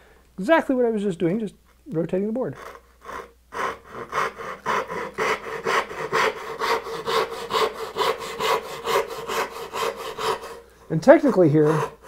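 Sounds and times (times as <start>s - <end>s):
saw cutting wood: 2.6s - 12.0s.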